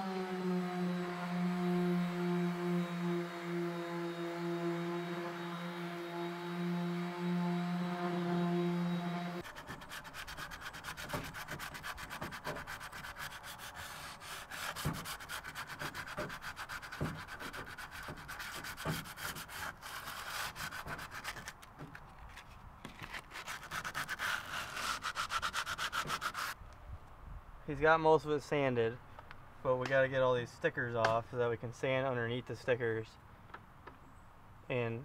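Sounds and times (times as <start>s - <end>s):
sanding pad rubbing metal: 0.0s - 21.5s, 23.4s - 26.6s.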